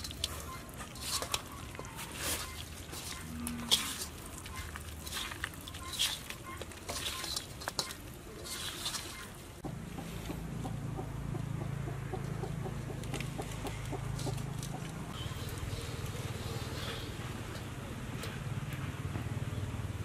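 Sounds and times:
hands squishing a wet mixture: 0.0 - 9.6.

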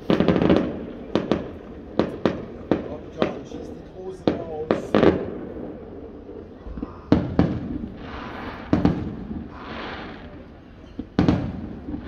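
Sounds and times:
fireworks bangs: 0.0 - 12.0
fireworks hiss: 6.9 - 12.0.

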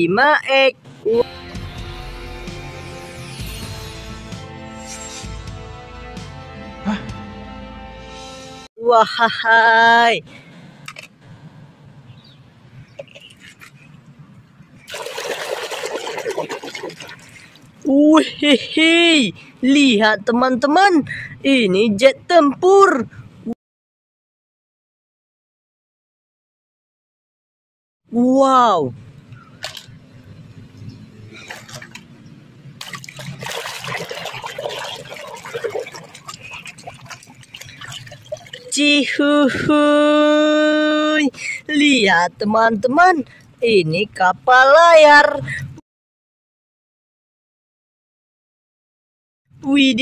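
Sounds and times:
water splashing: 13.0 - 14.0, 14.8 - 17.9, 31.3 - 32.2, 32.8 - 38.8
soapy foam squelching: 14.9 - 17.8, 32.8 - 38.7.

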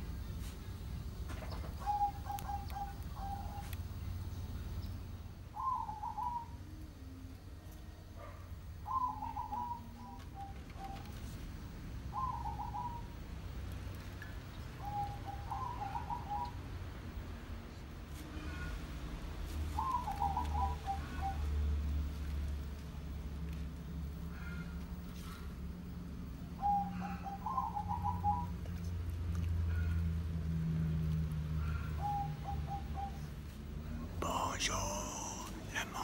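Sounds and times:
bird calling: 1.4 - 3.9, 5.5 - 6.8, 8.8 - 11.3, 12.1 - 13.2, 14.8 - 16.6, 19.7 - 21.5, 26.6 - 28.9.

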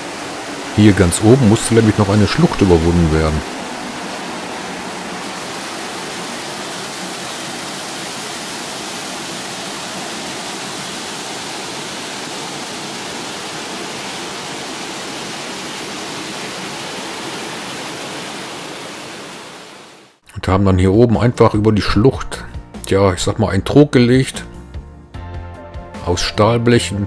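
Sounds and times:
water gushing through lock gate: 0.0 - 19.4.

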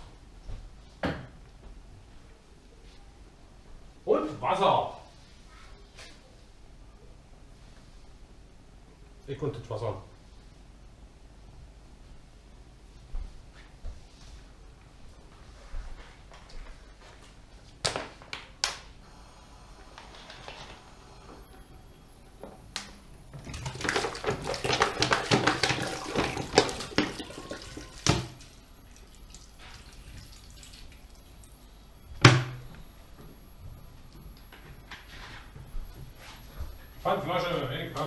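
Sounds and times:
water pouring into pot: 23.4 - 31.6.

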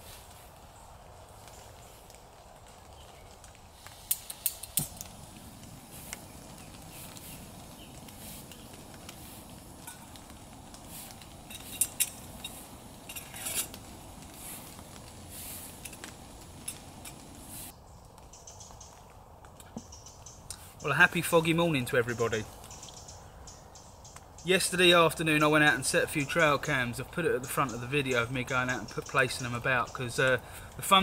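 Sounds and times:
steel cups and pot clinking: 11.1 - 13.8.

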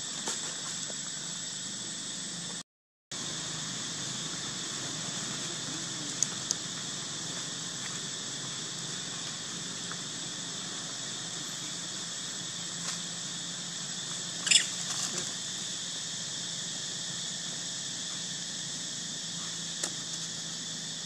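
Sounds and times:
insects droning: 0.0 - 21.0
baby monkey squealing: 14.4 - 14.9.

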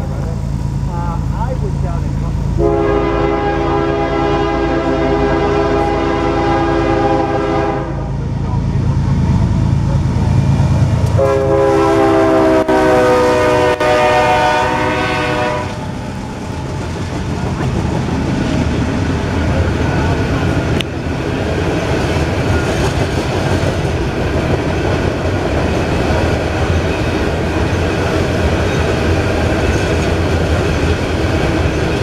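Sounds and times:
freight cars rolling past: 0.0 - 12.9, 13.6 - 32.0
locomotive engine rumble: 0.0 - 32.0
locomotive air horn blasts: 2.6 - 8.1, 11.1 - 15.9.

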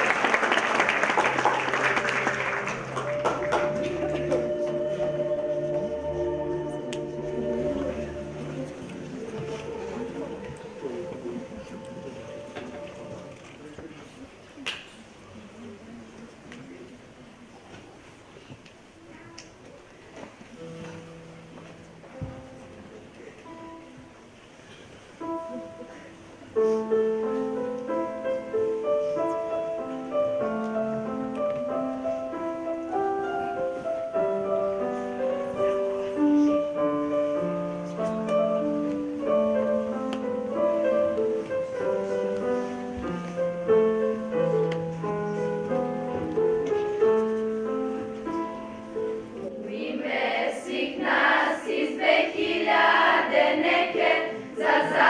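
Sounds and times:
children's choir singing: 0.0 - 13.7, 47.5 - 55.0
slow instrumental held chords: 2.6 - 14.0, 20.6 - 49.9.

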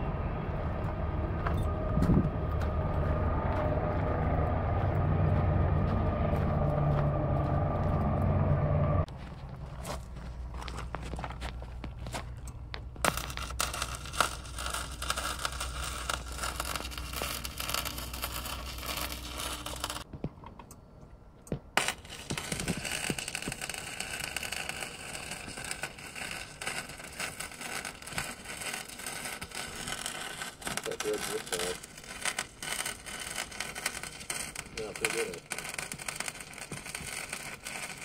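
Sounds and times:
arc welding crackle: 12.9 - 20.1, 21.8 - 38.0.

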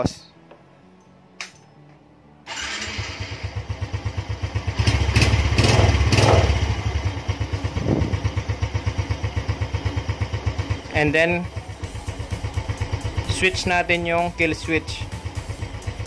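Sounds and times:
motorcycle engine starting and revving: 2.5 - 16.0.

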